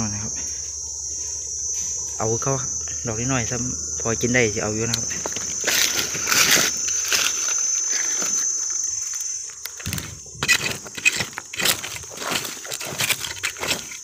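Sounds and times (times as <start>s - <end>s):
high-pitched insect drone: 0.0s - 14.0s
stick scraping stony soil: 9.8s - 14.0s.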